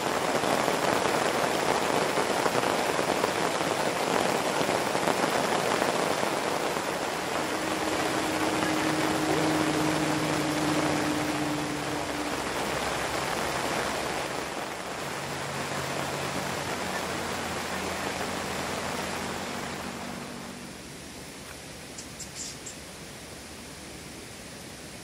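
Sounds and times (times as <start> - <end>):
rain hissing on tarp: 0.0 - 25.0.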